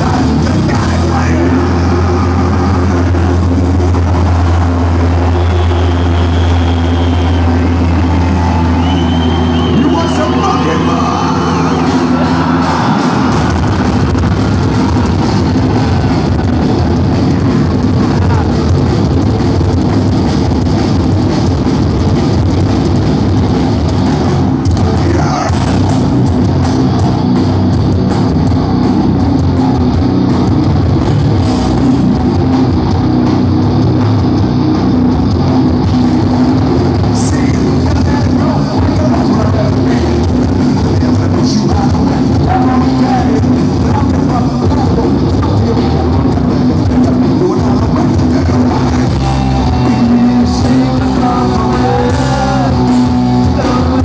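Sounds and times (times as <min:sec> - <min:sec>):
distorted electric guitars: 0:00.0 - 0:54.0
drum kit: 0:00.0 - 0:54.0.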